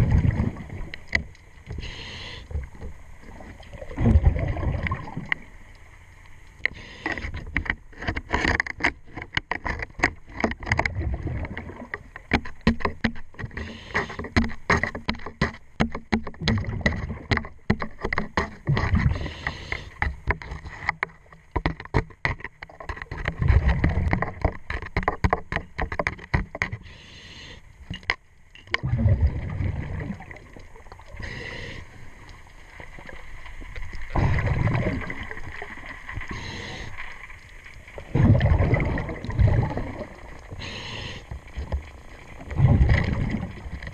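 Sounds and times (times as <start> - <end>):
underwater clicks and knocks: 0.0 - 1.8, 6.5 - 26.9, 27.8 - 31.1, 41.3 - 43.9
diver exhaling bubbles underwater: 1.8 - 5.4, 28.8 - 31.8, 34.1 - 36.9, 38.0 - 41.2, 42.4 - 43.8.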